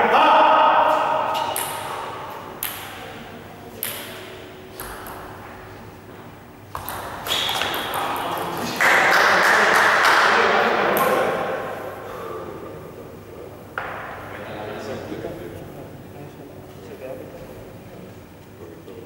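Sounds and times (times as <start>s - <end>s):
voice: 0.0s - 1.0s, 7.7s - 11.6s
table tennis ball clicking: 6.7s - 8.8s.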